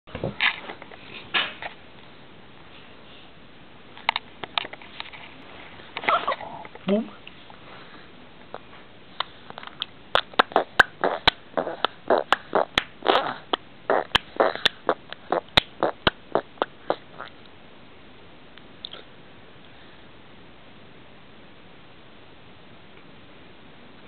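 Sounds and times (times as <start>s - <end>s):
toddler making mouth noises: 10.2s - 17.3s.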